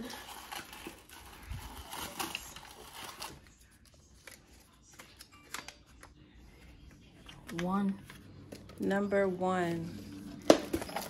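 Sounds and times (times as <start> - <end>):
tissue paper crinkling and tearing: 0.0 - 5.2.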